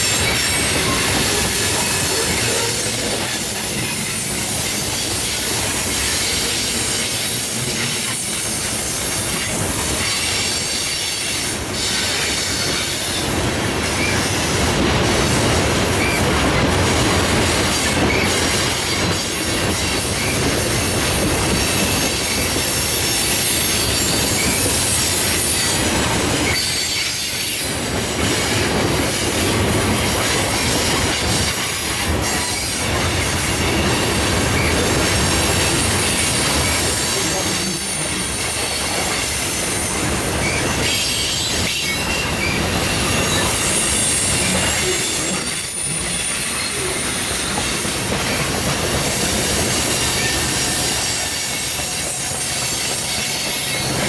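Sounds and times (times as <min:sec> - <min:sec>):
steel wheels rumbling on rail: 0:00.0 - 0:54.0
high wheel squeal: 0:21.4 - 0:28.5, 0:32.2 - 0:54.0.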